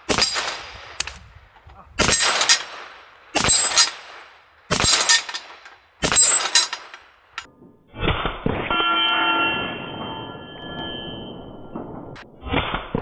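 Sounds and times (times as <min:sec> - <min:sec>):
steel target clanging: 0:00.0 - 0:00.8, 0:03.4 - 0:07.5
air pistol shots: 0:00.0 - 0:01.3, 0:02.0 - 0:06.9.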